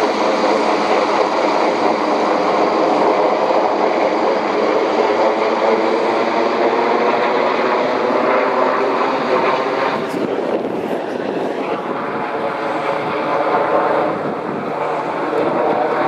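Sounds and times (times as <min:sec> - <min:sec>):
helicopter flying low overhead: 0:00.0 - 0:16.0.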